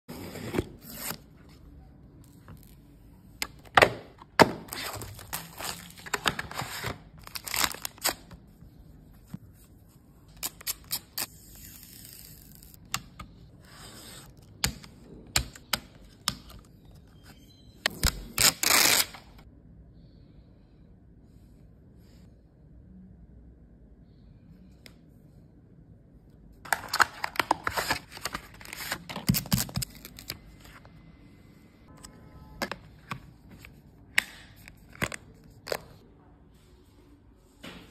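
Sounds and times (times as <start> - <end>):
packaging crinkling and tearing: 4.7 - 8.3
blade slitting packing tape: 17.9 - 19.2.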